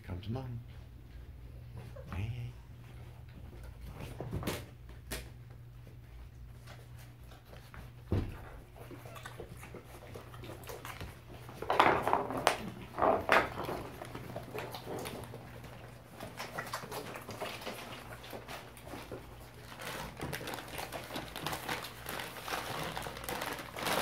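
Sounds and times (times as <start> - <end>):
puppies nursing: 0.0 - 24.0
dog eating from bowl: 6.6 - 24.0.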